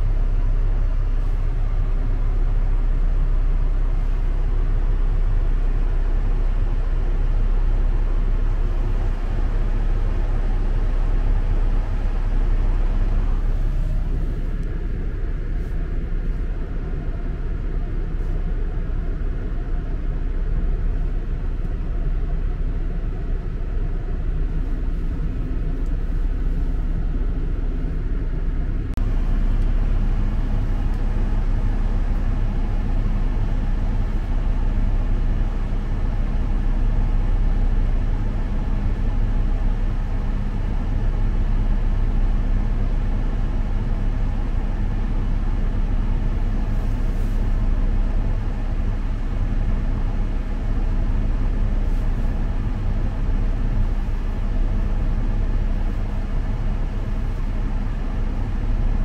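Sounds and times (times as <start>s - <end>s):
car engine running: 0.0s - 41.1s
air blowing from vents: 0.0s - 59.0s
steady hum: 0.0s - 59.0s.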